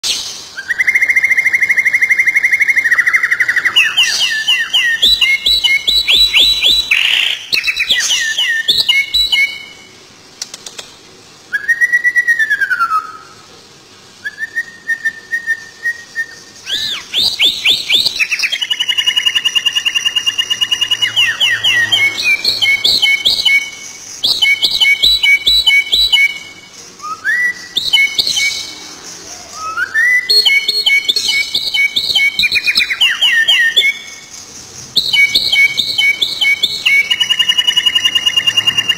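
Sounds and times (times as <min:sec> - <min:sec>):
songbird singing trills and whistles: 0:00.0 - 0:09.9, 0:11.5 - 0:13.4, 0:14.2 - 0:38.9.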